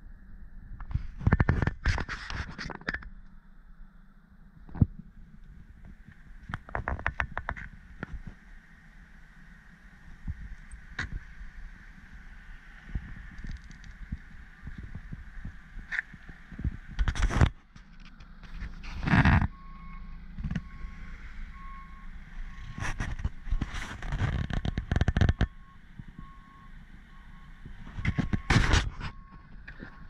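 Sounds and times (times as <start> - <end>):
rustling on camera microphone: 0.8 - 3.1, 12.8 - 20.8, 22.5 - 26.3, 27.7 - 30.0
reversing alarm beeping: 19.5 - 23.7, 24.7 - 30.0.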